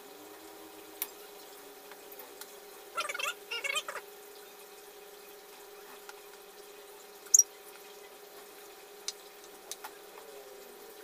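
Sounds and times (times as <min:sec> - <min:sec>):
faint cooking sounds: 0:00.0 - 0:11.0.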